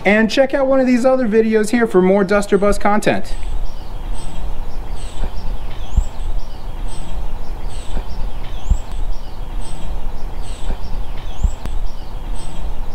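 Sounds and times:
birds chirping: 0:00.0 - 0:12.9.

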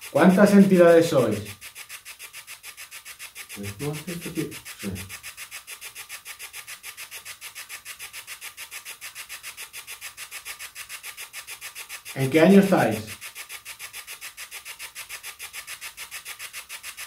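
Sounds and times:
rapid chopping radio static: 0:00.0 - 0:01.6, 0:03.6 - 0:05.1, 0:12.2 - 0:13.2
voice-like snatches: 0:03.6 - 0:05.1.

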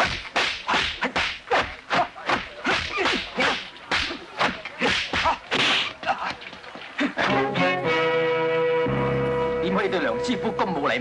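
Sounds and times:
whip-like swishes and smacks: 0:00.0 - 0:06.4.

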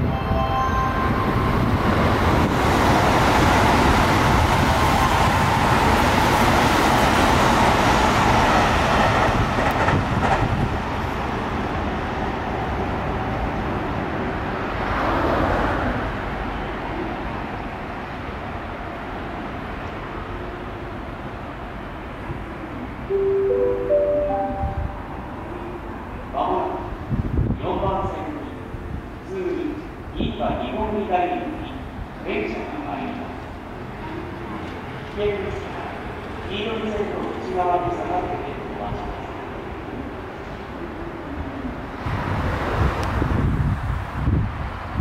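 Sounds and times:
short high tone: 0:00.0 - 0:01.8, 0:23.1 - 0:25.5
electric train passing at speed: 0:00.0 - 0:45.0.

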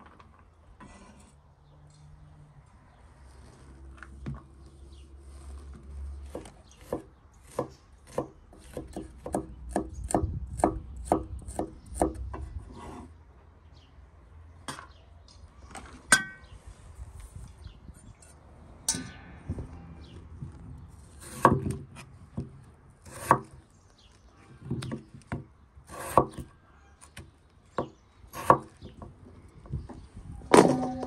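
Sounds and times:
knife chopping on wooden board: 0:06.3 - 0:12.2, 0:23.1 - 0:23.6, 0:24.6 - 0:26.5, 0:27.8 - 0:28.7.

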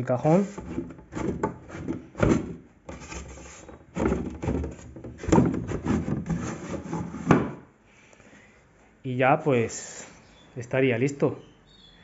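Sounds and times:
wooden panel scraping: 0:00.2 - 0:07.7.

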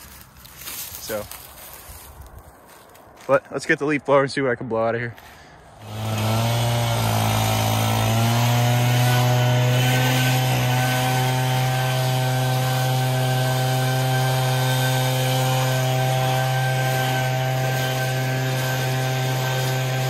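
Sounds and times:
leaf blower engine running: 0:05.2 - 0:20.0.

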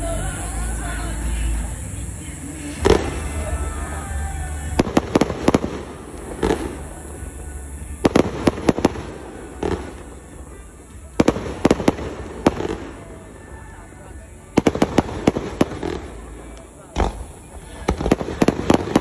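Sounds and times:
deep firework booms: 0:02.8 - 0:13.0, 0:14.6 - 0:19.0.

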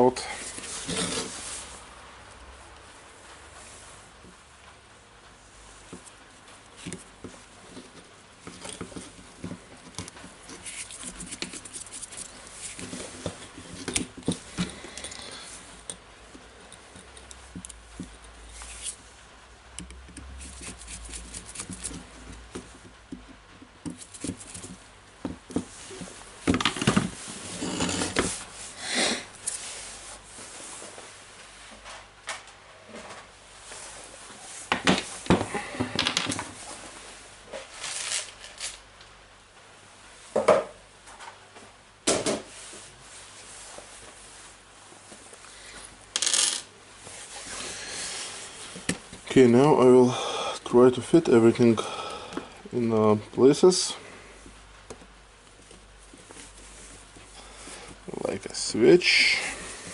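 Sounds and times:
knocks and scrapes: 0:00.4 - 0:01.7, 0:06.8 - 0:15.2, 0:20.1 - 0:28.5.

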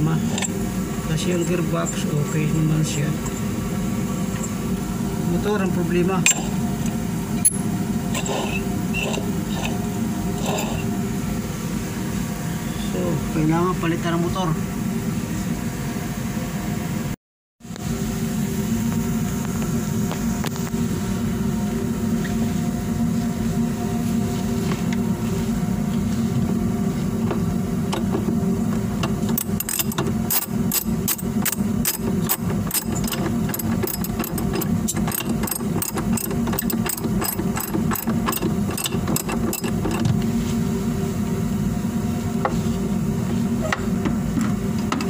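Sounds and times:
low mechanical hum: 0:00.0 - 0:45.0
hand tool clicking on metal: 0:29.3 - 0:40.0.

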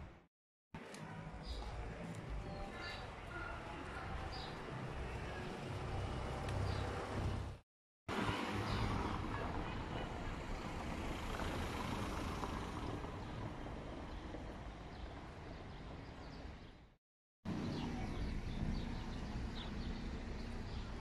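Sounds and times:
passing vehicles rushing: 0:04.6 - 0:15.7.

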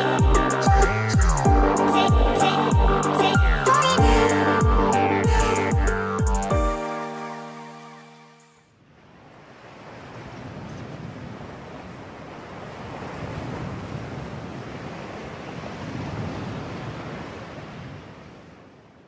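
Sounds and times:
ocean waves washing: 0:08.9 - 0:18.9.

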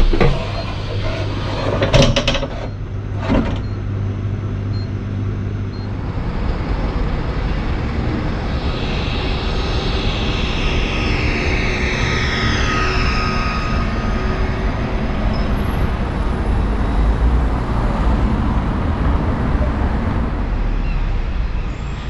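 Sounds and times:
bus interior low hum: 0:00.0 - 0:10.3
electric drive whine: 0:00.0 - 0:17.0.

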